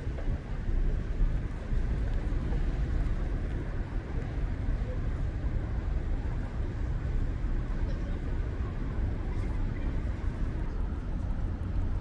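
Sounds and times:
road traffic rumble: 0:00.0 - 0:12.0
passers-by talking: 0:03.4 - 0:11.9.

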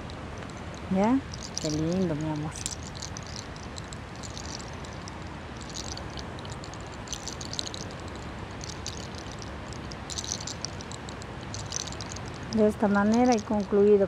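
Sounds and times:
hair crackling between fingers: 0:00.0 - 0:14.0
low background rumble: 0:00.0 - 0:14.0.

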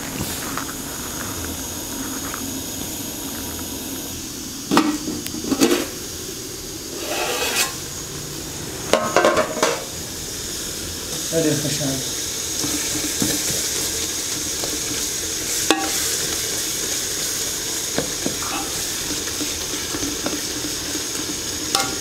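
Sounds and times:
vegetables sizzling in a pot: 0:00.0 - 0:22.0
metal ladle scraping a pot: 0:06.9 - 0:07.8.

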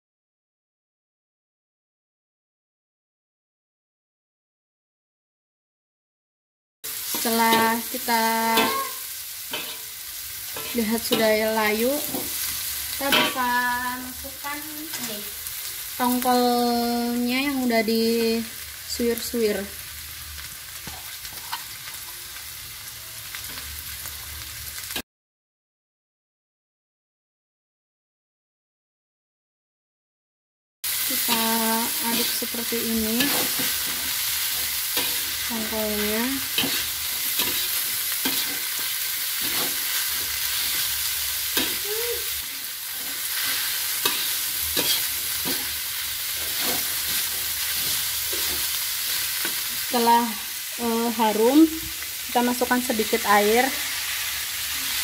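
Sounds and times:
food sizzling in hot oil: 0:06.8 - 0:25.0, 0:30.8 - 0:55.0
spatula scraping and knocking pan: 0:08.6 - 0:09.9, 0:36.5 - 0:40.9, 0:42.9 - 0:49.8.

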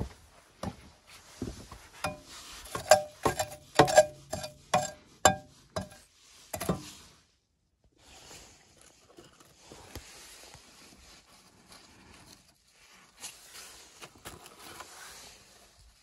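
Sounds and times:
metal scoop clanking in stove: 0:02.0 - 0:06.0, 0:06.6 - 0:07.0.

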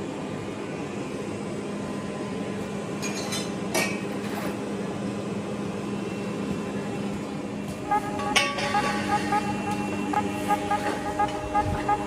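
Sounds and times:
workshop hum: 0:07.4 - 0:12.0.

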